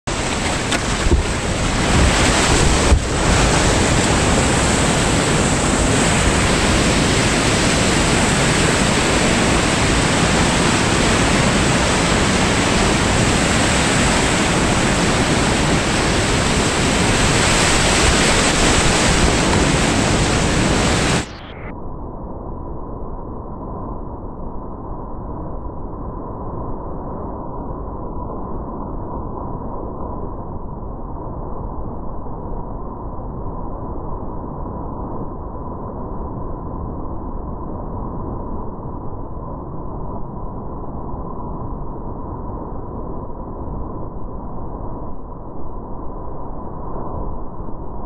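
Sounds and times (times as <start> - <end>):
whitewater rushing: 0.1 - 21.3.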